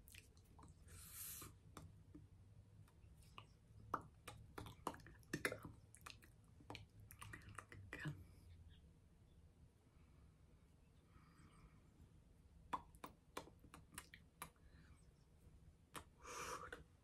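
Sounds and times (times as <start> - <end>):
mouth smacks: 0.0 - 7.9, 12.7 - 14.6, 15.9 - 16.9
faint low room hum: 0.0 - 17.0
short breathy hiss: 0.9 - 1.6.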